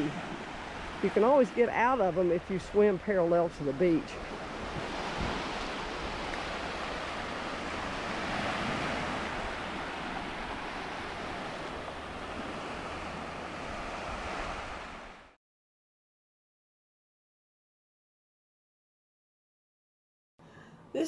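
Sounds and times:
small surf washing over sand: 0.0 - 15.3.

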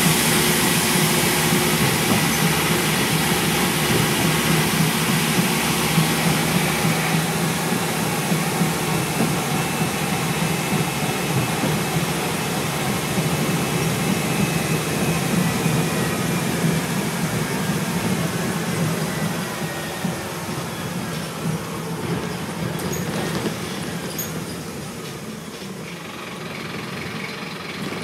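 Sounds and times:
bus diesel engine hum: 0.0 - 28.0
road noise rushing: 0.0 - 28.0.

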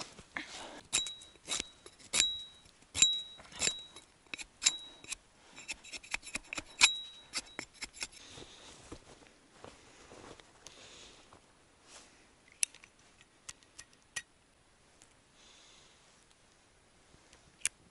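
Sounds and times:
hatchet chopping sticks: 0.9 - 8.2.

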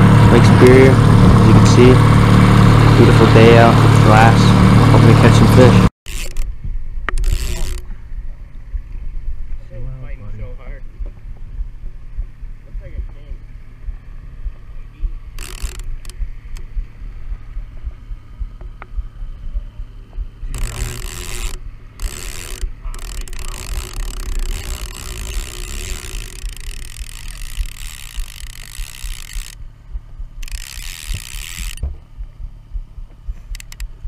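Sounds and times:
outboard motor humming: 0.0 - 34.0
fishing reel ratcheting: 6.1 - 7.9, 15.3 - 16.7, 20.5 - 29.6, 30.4 - 31.9, 33.4 - 34.0.

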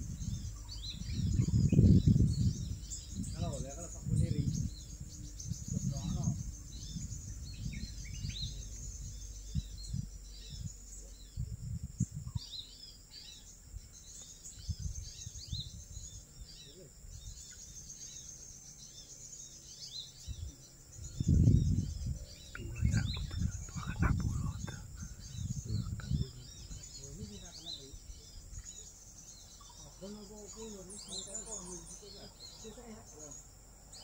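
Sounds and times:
low rumble: 0.0 - 12.4
steady high drone: 0.0 - 16.4, 17.3 - 32.2
small birds chirping: 0.0 - 34.0.

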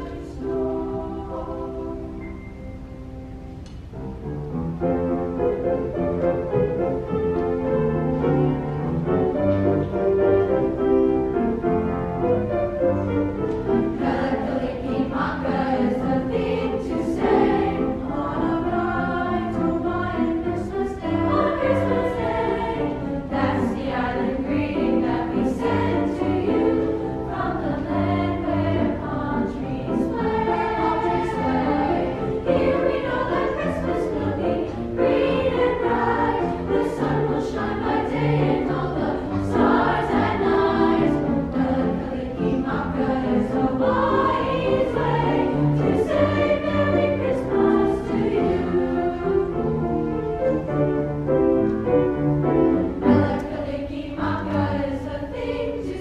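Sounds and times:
children's chorus singing: 0.0 - 2.5, 13.6 - 49.9, 52.9 - 56.0
piano accompaniment: 0.0 - 56.0.

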